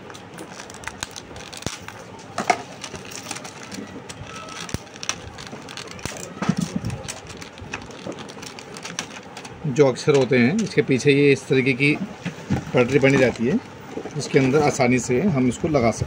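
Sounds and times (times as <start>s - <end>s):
plastic wrap crinkling: 0.0s - 9.7s.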